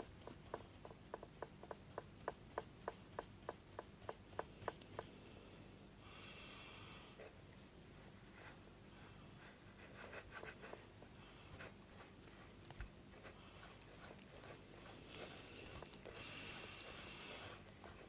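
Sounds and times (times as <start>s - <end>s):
soft rub: 7.0s - 18.0s.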